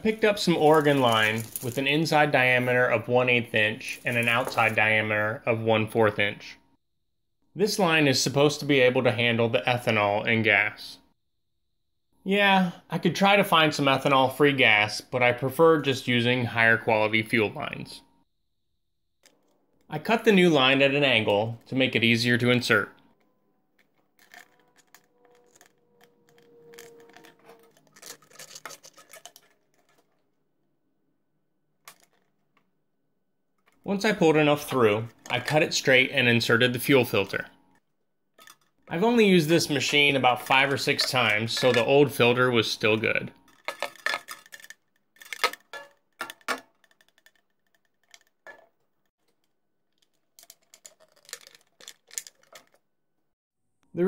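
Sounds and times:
plastic scraping and clicking: 23.0 - 30.2, 43.4 - 52.8.

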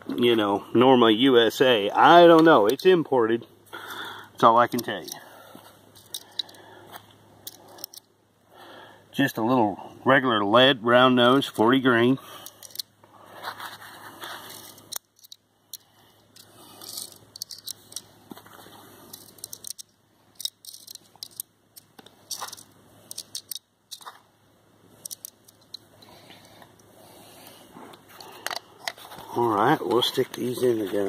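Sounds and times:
handling rustle: 12.4 - 24.3
cartridges clicking into magazine: 19.1 - 24.0.

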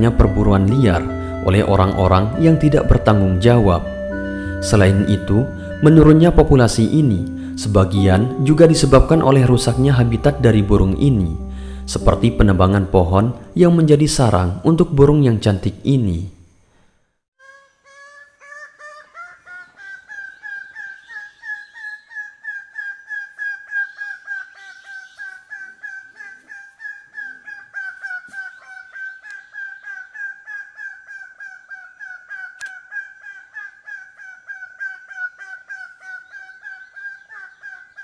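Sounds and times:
bird calling quick repeated notes: 19.4 - 38.0.

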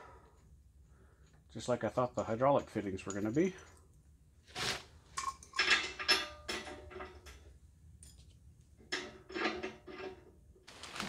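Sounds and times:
metal tools clinking on steel: 2.1 - 4.0, 5.1 - 10.3.

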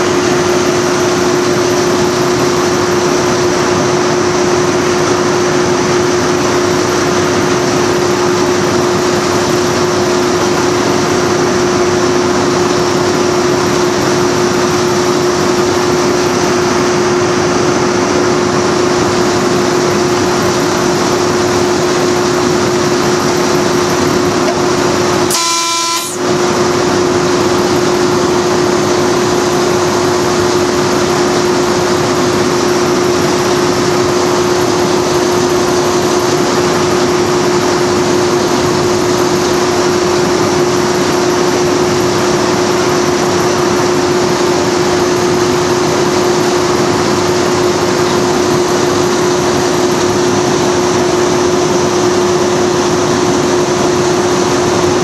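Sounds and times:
diesel locomotive droning: 0.0 - 55.0
locomotive horn blast: 25.2 - 26.3.

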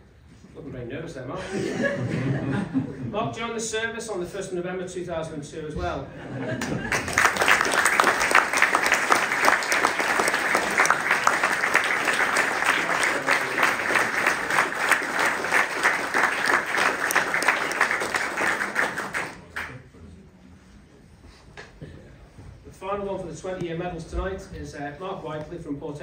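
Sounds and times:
audience applauding: 6.6 - 19.8.

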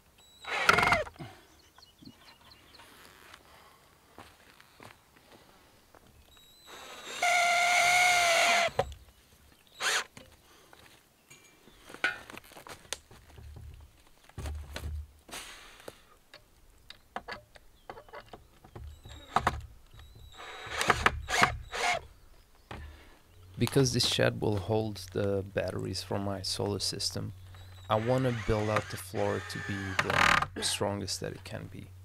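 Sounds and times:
power tool motor running: 0.4 - 1.1, 6.4 - 8.9, 9.8 - 10.1, 20.1 - 22.0, 27.7 - 30.4
knocks of wood and tools handled: 11.9 - 15.1.

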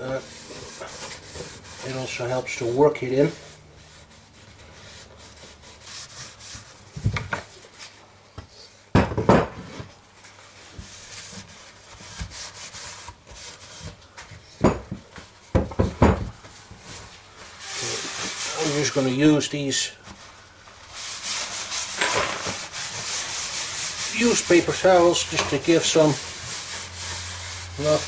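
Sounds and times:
paper towel rubbing on wood: 0.0 - 6.9, 10.5 - 14.0, 16.9 - 28.0
wooden knocks on workbench: 14.6 - 16.4.

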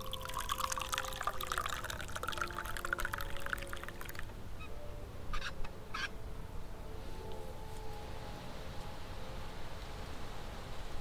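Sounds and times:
liquid pouring into cup: 0.0 - 4.3.

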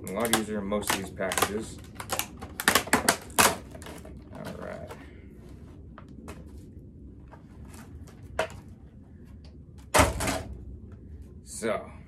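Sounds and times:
plastic clattering: 0.0 - 5.0
plastic packaging rustling: 0.0 - 5.0.

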